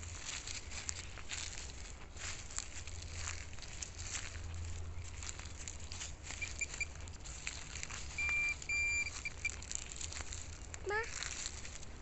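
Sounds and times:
footsteps crunching through leaves: 0:00.0 - 0:12.0
electronic beeps: 0:06.4 - 0:07.0, 0:08.1 - 0:09.6.

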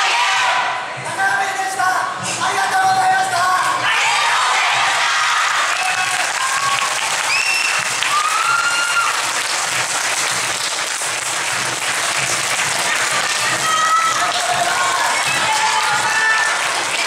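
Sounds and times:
crowd applauding: 0:04.9 - 0:17.0.

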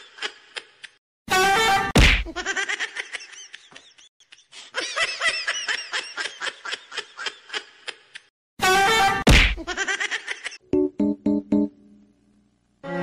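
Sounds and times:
giggling laughter: 0:02.3 - 0:08.3, 0:09.6 - 0:10.6.

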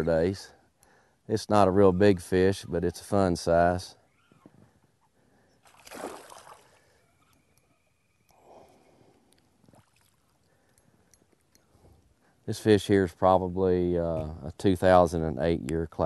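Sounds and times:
fish splashing at water surface: 0:05.7 - 0:06.8.

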